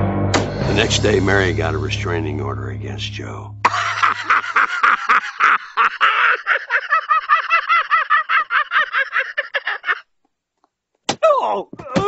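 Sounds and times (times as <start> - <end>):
man cackling laugh: 3.6 - 10.1.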